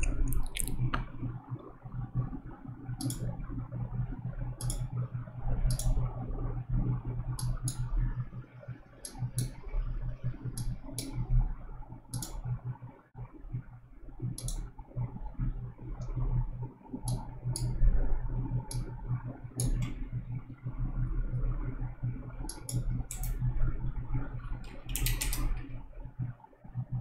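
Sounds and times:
computer mouse clicking: 0.0 - 1.2, 2.9 - 3.3, 4.6 - 5.0, 5.6 - 6.1, 7.4 - 7.9, 9.0 - 9.6, 10.4 - 11.3, 12.1 - 12.5, 14.2 - 14.7, 17.0 - 17.8, 18.6 - 20.0, 22.5 - 23.5, 24.6 - 25.8
steady low hum: 0.0 - 27.0.

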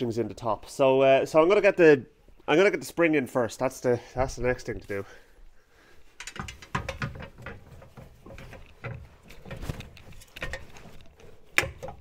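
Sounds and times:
metal suspension parts clicking: 6.2 - 12.0.

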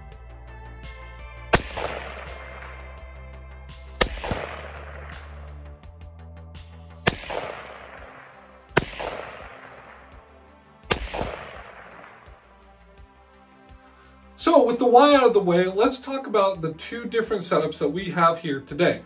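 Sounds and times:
background music: 0.0 - 19.0
rifle shots echoing: 1.5 - 3.1, 4.0 - 5.6, 7.0 - 10.2, 10.8 - 12.4.

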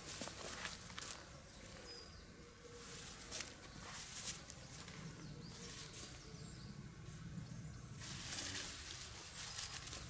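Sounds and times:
footsteps in leaves: 0.0 - 1.3, 2.8 - 6.2, 8.0 - 10.0
tarp rustling: 8.0 - 10.0.

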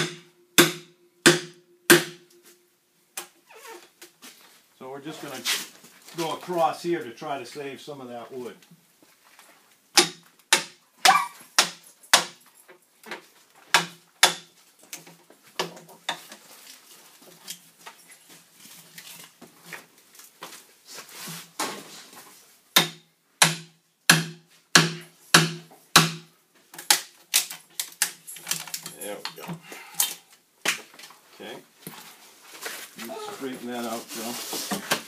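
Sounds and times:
axe chopping into log: 0.0 - 2.2, 10.0 - 10.8, 11.6 - 12.4, 22.8 - 26.3.

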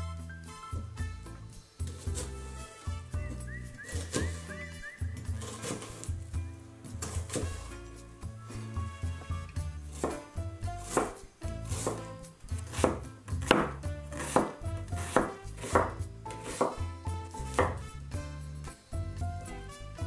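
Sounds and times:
knife chopping on wooden board: 3.8 - 4.5, 5.2 - 6.1, 7.0 - 7.7, 9.9 - 17.9.

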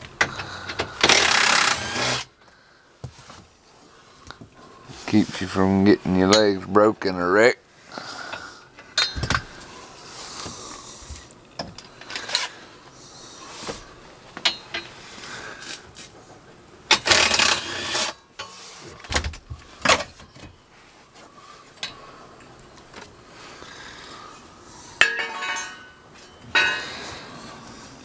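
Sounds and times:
metallic clinks and knocks: 8.9 - 9.5, 25.0 - 27.1.

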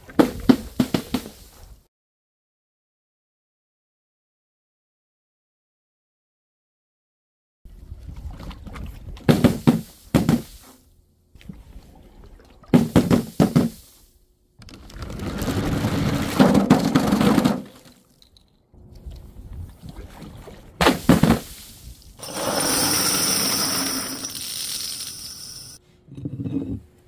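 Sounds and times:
balloons splatting on pavement: 9.3 - 10.6, 20.8 - 21.6
plastic bottles rolling down ramp: 14.6 - 18.3, 22.2 - 25.8.

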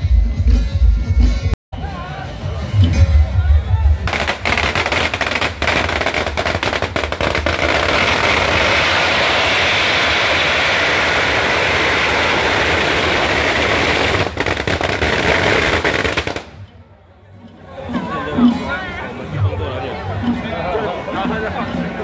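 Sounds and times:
firecrackers crackling: 4.0 - 16.8.

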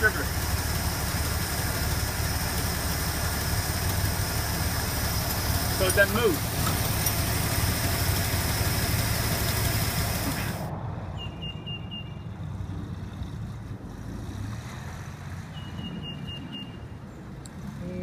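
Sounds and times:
car engine idling: 0.0 - 10.7
distant engine hum: 0.0 - 18.0
short high bird chirps: 11.2 - 12.3, 15.6 - 16.9.

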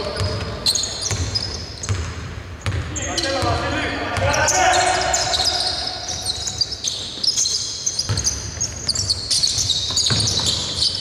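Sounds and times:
sneakers squeaking: 0.0 - 11.0
basketball bouncing on hardwood: 9.6 - 10.6.

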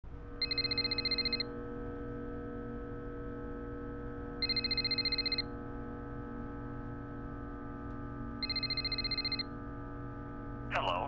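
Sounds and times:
steady low drone: 0.1 - 11.0
electronic telephone ringing: 0.4 - 1.4, 4.4 - 5.4, 8.4 - 9.4.

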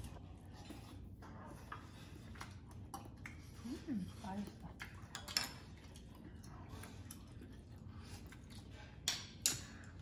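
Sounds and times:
faint chewing: 0.0 - 10.0.

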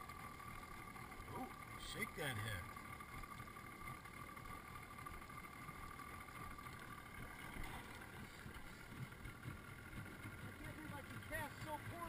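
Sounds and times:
faint boat background noise: 0.0 - 12.0.

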